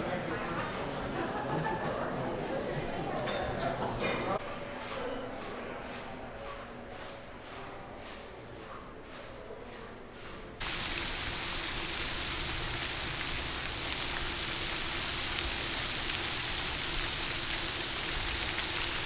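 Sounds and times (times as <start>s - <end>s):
fountain water spraying and splashing: 10.6s - 19.0s.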